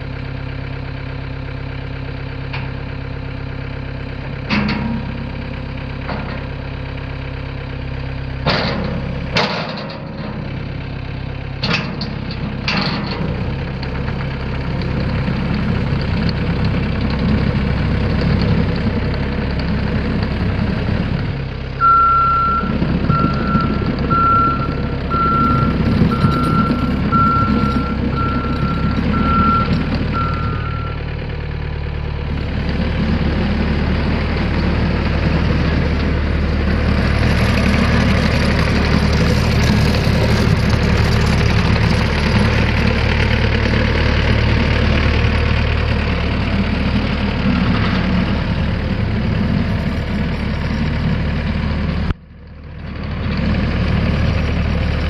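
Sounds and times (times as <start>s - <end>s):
diesel engine running: 0.0s - 55.0s
backup alarm beeps: 21.8s - 31.0s.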